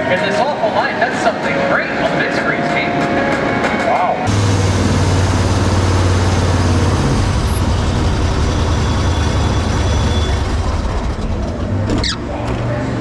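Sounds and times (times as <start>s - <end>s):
vehicle engine running: 4.3s - 13.0s.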